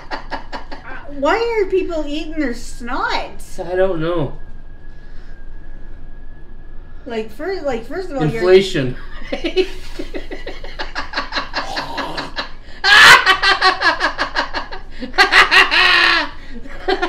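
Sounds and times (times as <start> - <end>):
man and woman laughing: 0.0 - 1.1, 8.9 - 17.0.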